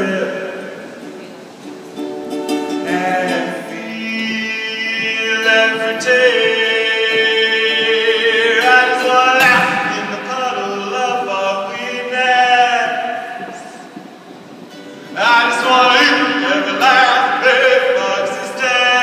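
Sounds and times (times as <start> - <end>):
person singing long notes: 2.7 - 14.1, 15.1 - 19.0.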